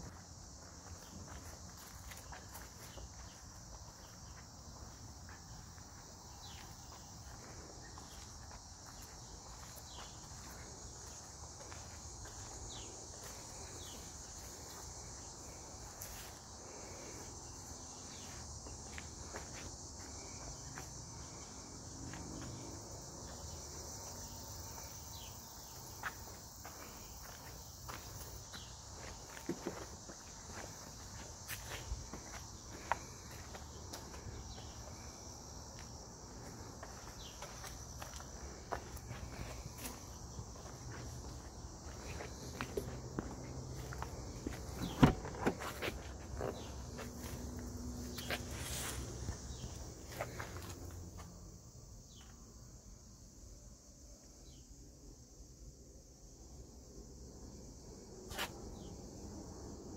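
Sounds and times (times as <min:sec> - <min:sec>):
footsteps on pavement: 0:00.0 - 0:22.7, 0:23.3 - 0:51.3
high-pitched insect chorus: 0:00.0 - 0:59.9.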